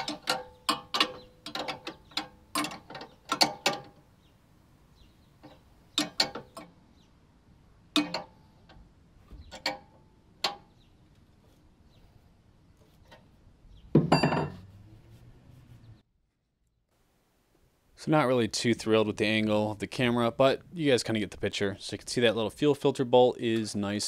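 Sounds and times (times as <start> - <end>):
metallic knocks and clicks: 0.0 - 4.1, 5.4 - 6.8, 7.9 - 10.9
engine low hum: 13.4 - 16.0.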